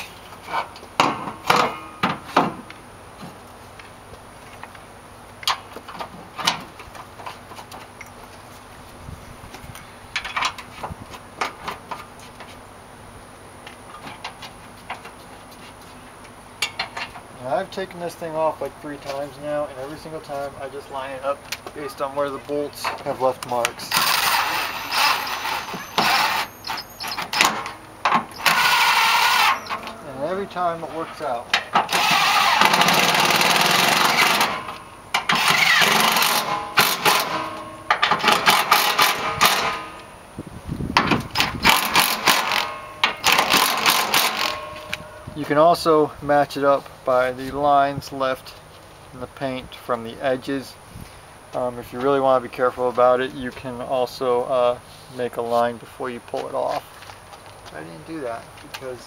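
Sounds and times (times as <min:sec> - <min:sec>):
metal-on-metal clanks: 0:00.5 - 0:02.6, 0:24.0 - 0:40.2, 0:41.0 - 0:45.3
impact driver whirring: 0:23.9 - 0:27.6, 0:28.3 - 0:29.8, 0:31.9 - 0:34.7, 0:35.3 - 0:37.4.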